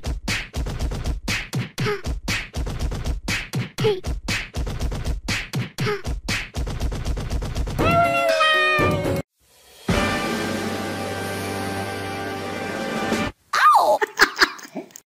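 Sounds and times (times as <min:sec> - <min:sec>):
beatboxing: 0:00.0 - 0:06.9.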